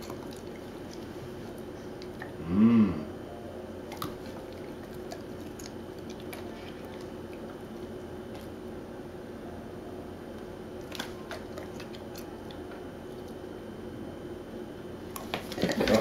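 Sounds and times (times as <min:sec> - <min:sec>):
dog chewing: 0:00.0 - 0:02.4, 0:03.8 - 0:08.6, 0:10.8 - 0:13.4.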